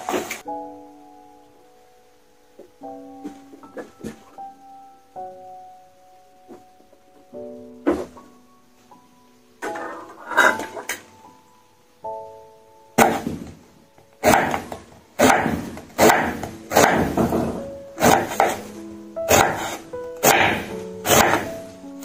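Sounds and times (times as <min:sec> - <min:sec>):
background music: 0:00.0 - 0:22.0
knife slicing radish: 0:14.2 - 0:17.2, 0:18.0 - 0:18.7, 0:19.3 - 0:21.6.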